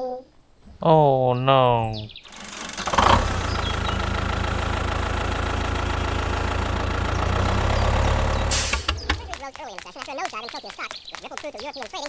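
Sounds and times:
tractor engine rumbling: 2.2 - 9.7
short hiss: 8.5 - 9.0.

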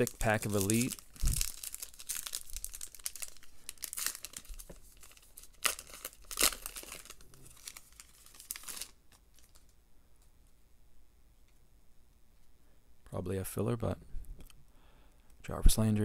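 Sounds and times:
foil wrapper crinkling and tearing: 0.0 - 9.8.

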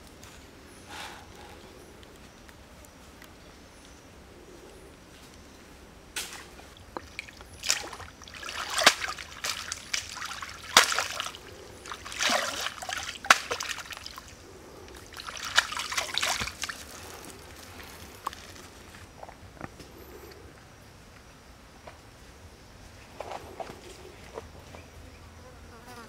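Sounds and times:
water sloshing and splashing: 6.6 - 19.1.

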